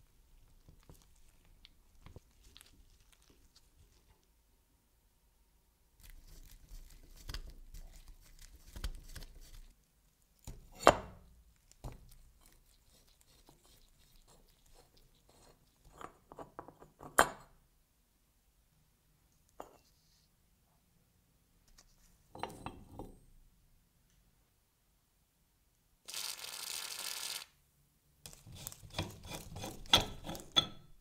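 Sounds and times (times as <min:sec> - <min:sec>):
screw threads grinding: 0:28.3 - 0:30.8.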